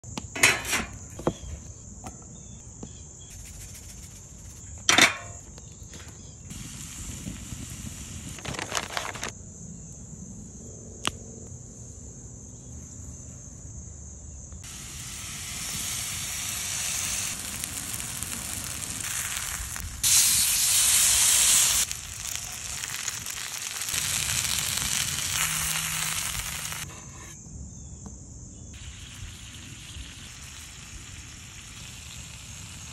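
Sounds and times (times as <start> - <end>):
food sizzling in a skillet: 14.6 - 26.9, 28.8 - 32.9.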